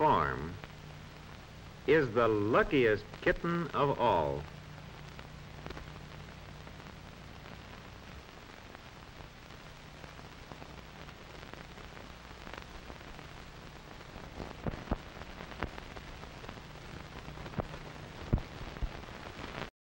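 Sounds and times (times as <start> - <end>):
film soundtrack hiss: 0.0 - 19.7
clicks and pops: 5.0 - 6.1.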